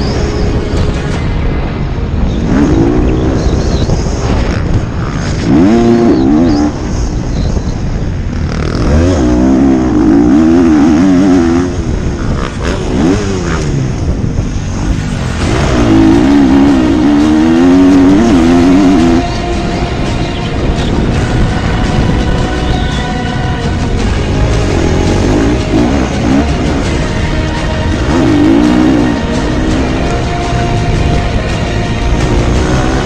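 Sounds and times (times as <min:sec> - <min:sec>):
wind rushing over microphone: 0:00.0 - 0:33.0
motocross bike engine revving: 0:02.3 - 0:33.0.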